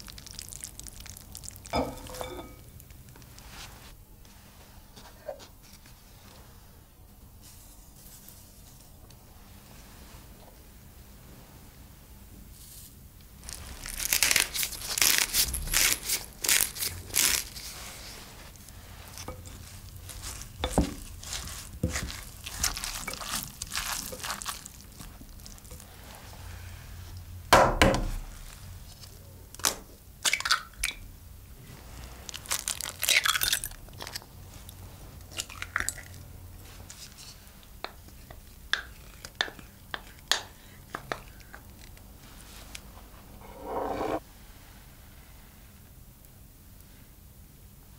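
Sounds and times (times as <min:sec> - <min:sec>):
grated potato crunching: 0:13.5 - 0:26.0.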